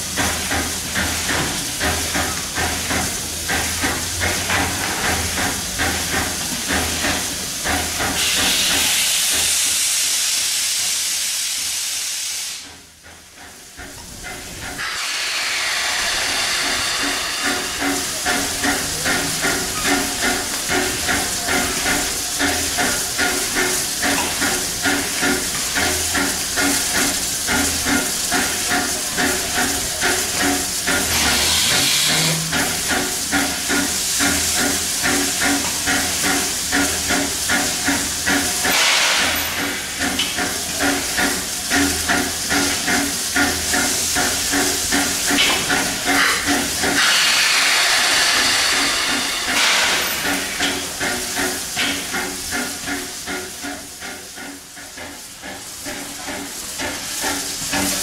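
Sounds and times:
steam hissing: 0.0s - 58.0s
steam locomotive pumping beat: 0.0s - 58.0s.

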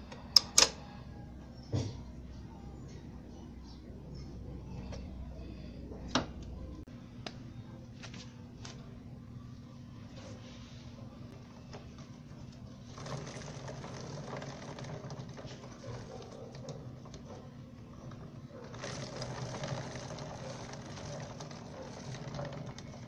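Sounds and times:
steady low hum: 0.0s - 23.0s
motorcycle chain clattering over sprocket: 12.9s - 17.2s, 18.6s - 23.0s.

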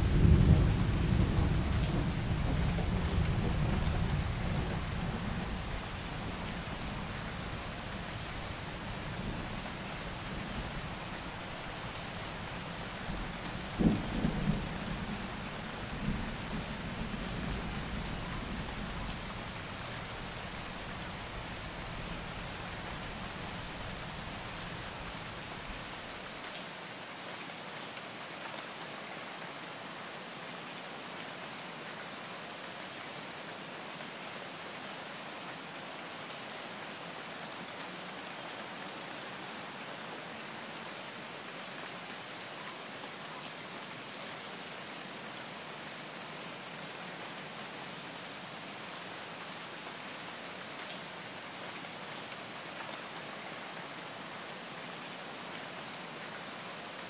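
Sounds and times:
steady rain: 0.0s - 57.0s
deep thunder rumbles: 13.7s - 15.2s.

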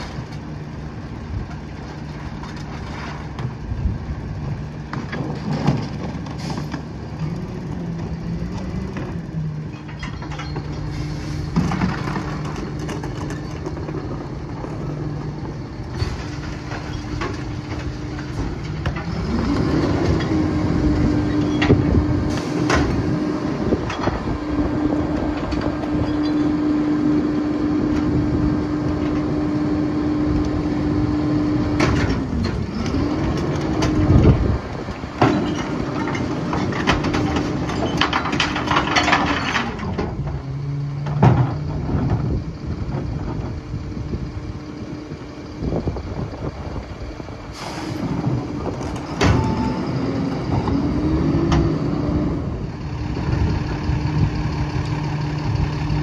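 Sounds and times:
bins knocking and banging: 4.9s - 6.9s, 11.4s - 19.2s, 35.2s - 40.4s
diesel engine idling: 40.1s - 56.0s.

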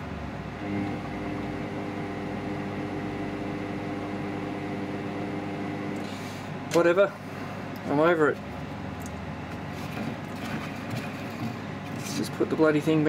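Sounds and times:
electric motor humming: 0.6s - 6.2s.

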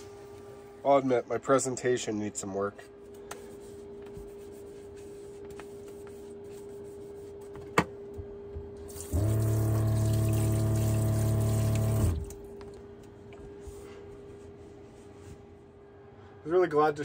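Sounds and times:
water pump humming: 8.8s - 13.5s
water splashing into metal sink: 8.9s - 12.4s.

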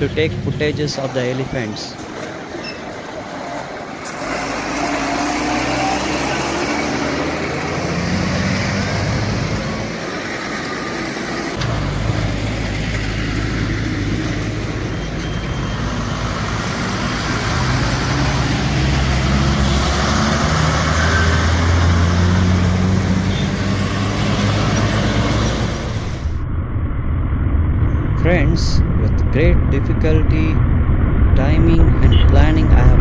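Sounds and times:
lorry engines humming: 0.0s - 26.4s
passing road traffic: 0.0s - 26.4s.

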